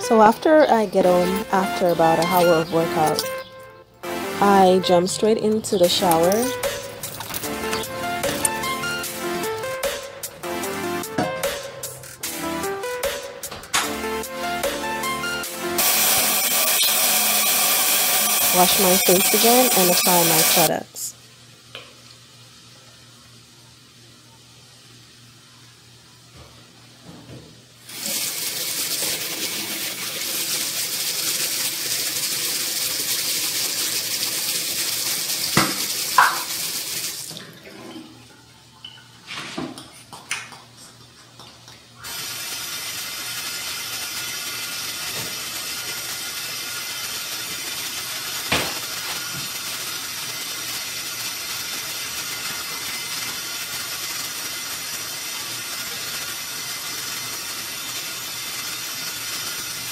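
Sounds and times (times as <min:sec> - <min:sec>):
sink tap running: 0:00.0 - 0:10.0, 0:14.6 - 0:20.8, 0:27.9 - 0:39.1, 0:42.0 - 0:59.9.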